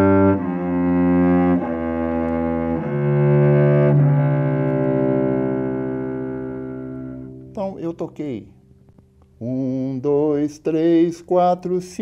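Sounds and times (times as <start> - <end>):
cello bowed sustained notes: 0.0 - 8.6.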